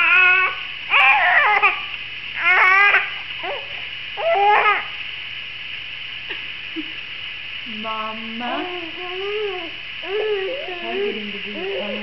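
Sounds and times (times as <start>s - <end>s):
infant whiny cries: 0.0s - 4.9s.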